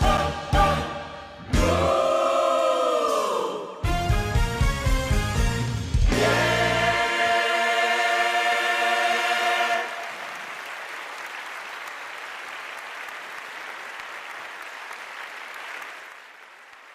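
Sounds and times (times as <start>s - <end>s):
group of singers holding a note: 0.0s - 3.9s, 6.1s - 10.4s
audience applauding: 9.1s - 16.9s.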